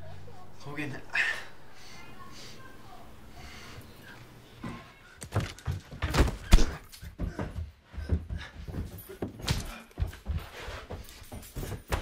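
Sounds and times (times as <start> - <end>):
thumps of bodies striking: 4.6 - 12.0.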